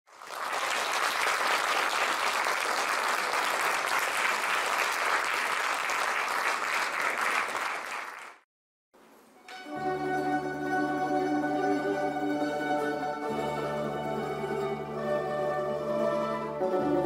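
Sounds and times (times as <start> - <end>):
audience applauding: 0.1 - 8.4.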